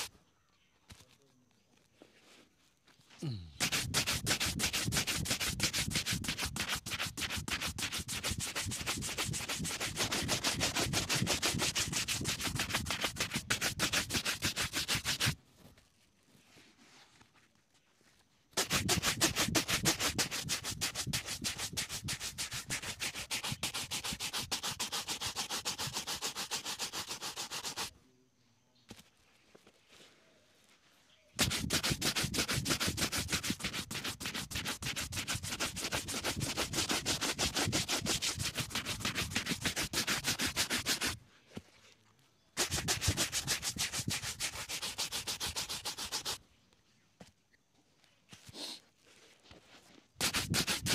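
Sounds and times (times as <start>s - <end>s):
shoe brush rubbing leather boot: 3.2s - 15.4s, 18.6s - 27.9s, 31.4s - 41.2s, 42.6s - 46.4s, 49.5s - 50.9s.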